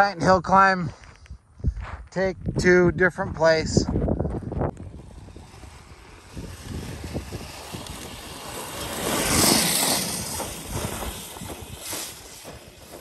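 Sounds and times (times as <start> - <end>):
electric dirt bike climbing: 3.7 - 13.0
tyre spinning in dirt: 5.0 - 13.0.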